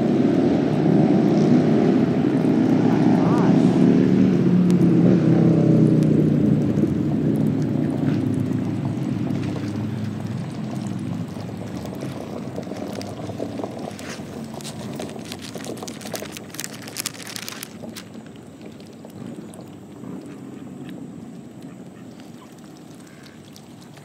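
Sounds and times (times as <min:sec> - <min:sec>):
engine humming: 0:00.0 - 0:24.0
small splashes and clicks: 0:05.7 - 0:24.0.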